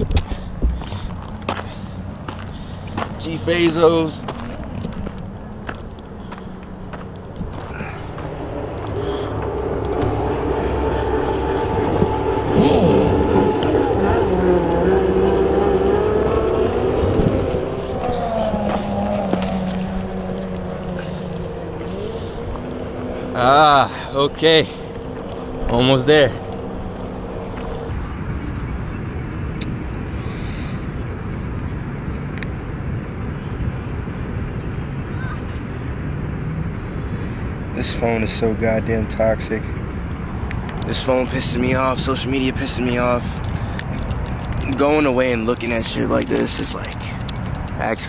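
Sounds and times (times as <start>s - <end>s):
wind rumbling on microphone: 0.0s - 37.8s
motor engines running: 0.0s - 48.0s.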